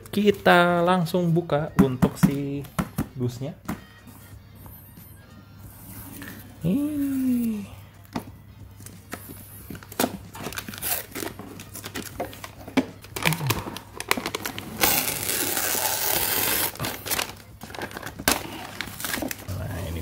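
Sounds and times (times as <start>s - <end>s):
film peeling tearing hiss: 14.8s - 17.2s.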